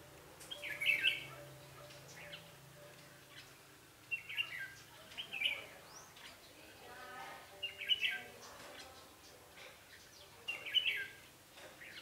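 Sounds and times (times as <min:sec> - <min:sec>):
bird singing chirpy phrases: 0:00.4 - 0:12.0.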